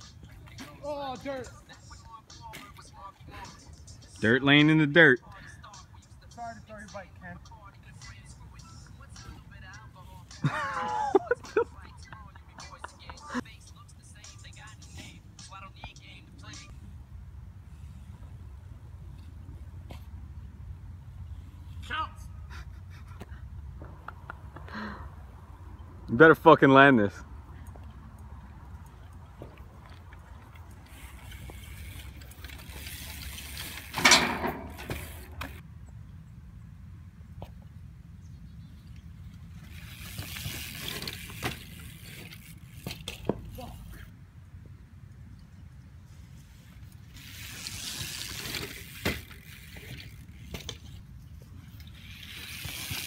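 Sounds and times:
bike tyres scuffing over dirt: 0:28.8 - 0:35.6, 0:39.0 - 0:44.1, 0:46.0 - 0:53.0
bike impact on metal guardrail: 0:33.7 - 0:35.6.

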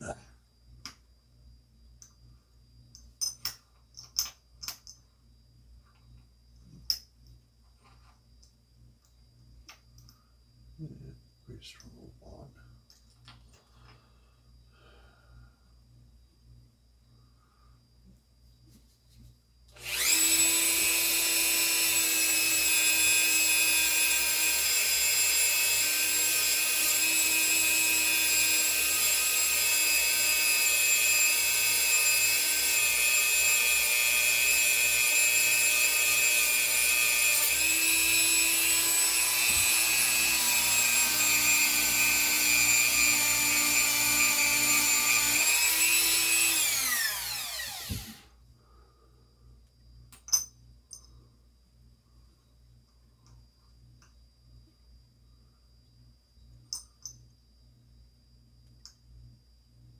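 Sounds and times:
rotary tool whining: 0:19.7 - 0:48.3.

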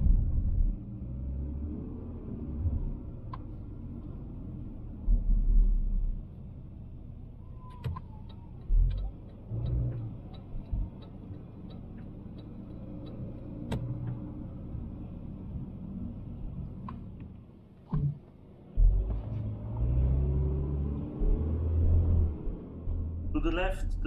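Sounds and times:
car engine and road rumble: 0:00.0 - 0:24.0
regular ticking: 0:08.2 - 0:14.2.

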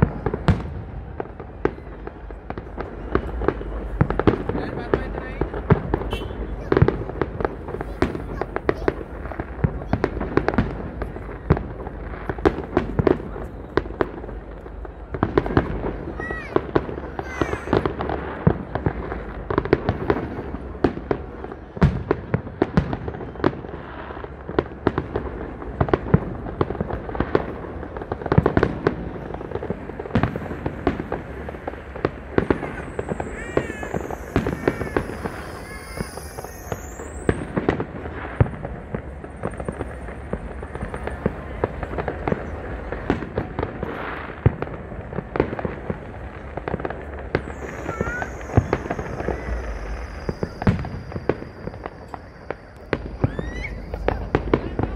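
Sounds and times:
fireworks bangs and crackles: 0:00.0 - 0:54.9.

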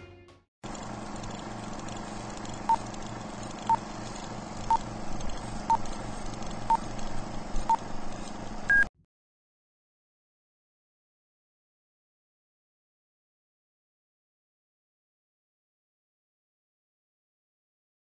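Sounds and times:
crackling hiss and hum: 0:00.7 - 0:08.9.

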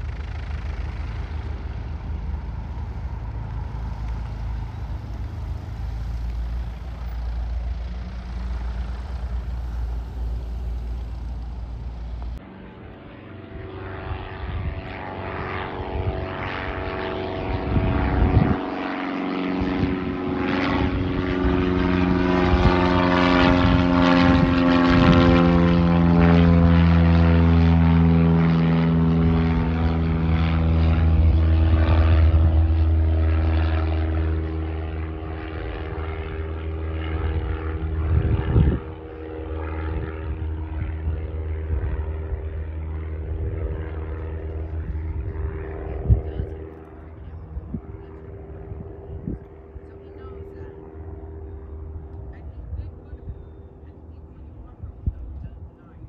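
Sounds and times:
propeller airplane flying over: 0:00.0 - 0:56.0.

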